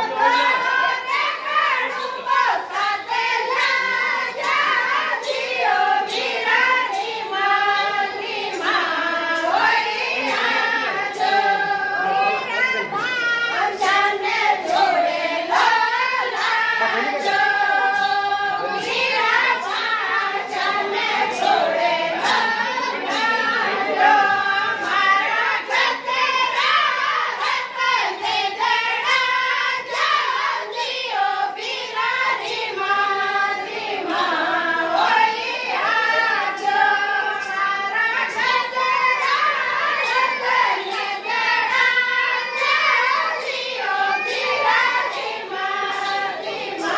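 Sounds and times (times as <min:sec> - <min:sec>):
hands clapping a beat: 0:00.0 - 0:31.0
women singing a folk song: 0:00.0 - 0:46.9.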